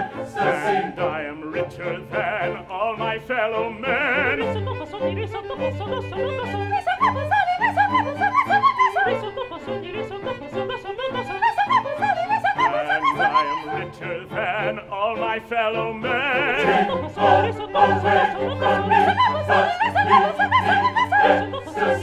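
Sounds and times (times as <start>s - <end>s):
operatic singing: 0.0s - 22.0s.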